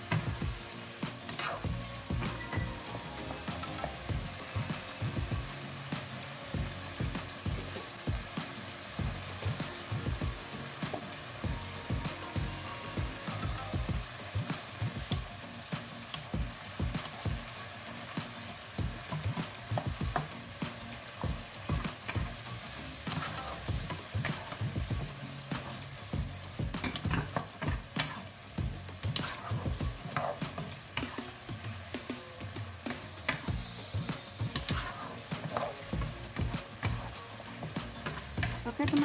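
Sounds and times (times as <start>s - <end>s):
vegetables sizzling in a wok: 0.0s - 39.0s
wooden spatula scraping a pan: 1.0s - 2.4s, 21.1s - 28.3s, 29.0s - 39.0s.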